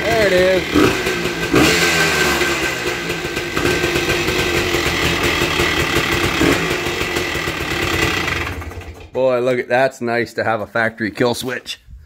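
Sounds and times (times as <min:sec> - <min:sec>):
three-wheeler engine idling: 0:00.0 - 0:09.2.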